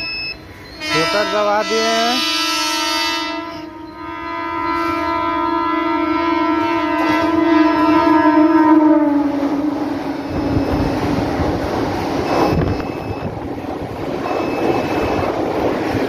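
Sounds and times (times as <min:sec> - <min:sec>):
train rumbling past: 0:00.0 - 0:16.0
train horn: 0:00.8 - 0:11.0.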